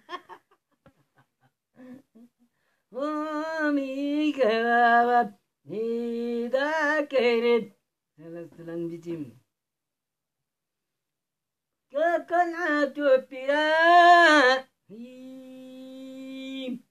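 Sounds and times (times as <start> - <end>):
elderly man singing unaccompanied: 2.9 - 9.4, 11.9 - 16.9.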